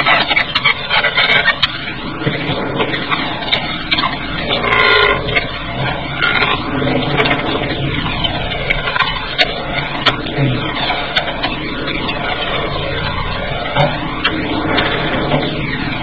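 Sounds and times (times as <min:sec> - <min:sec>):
car engine and road noise: 0:00.0 - 0:16.0.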